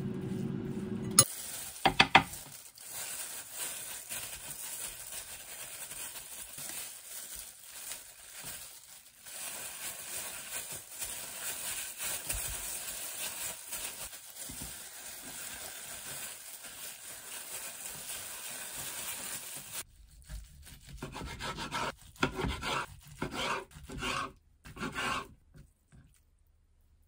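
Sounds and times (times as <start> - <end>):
gloved hands rustling rice: 1.2 - 20.2
knife sawing on cutting board: 21.0 - 25.4.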